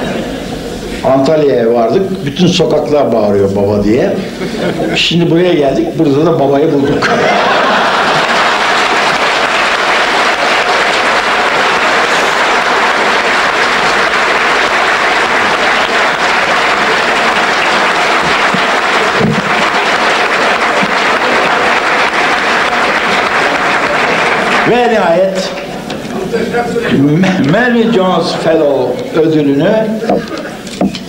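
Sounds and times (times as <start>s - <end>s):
audience applauding: 7.0s - 26.3s.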